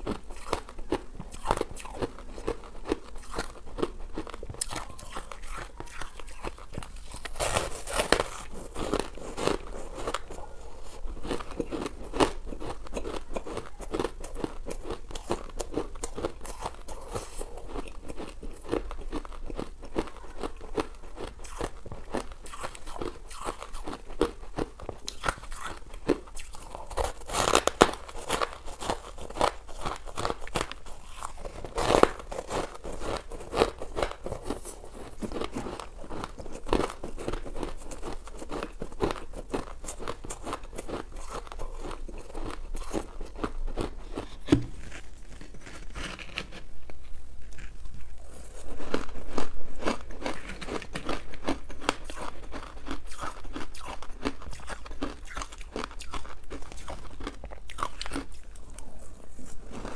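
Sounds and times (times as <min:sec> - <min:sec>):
ice being chewed: 0:00.0 - 0:59.9.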